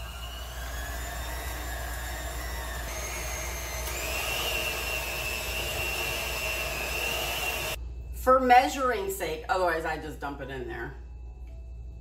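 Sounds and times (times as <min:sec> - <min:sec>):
electric hand mixer whirring: 0:00.0 - 0:07.8.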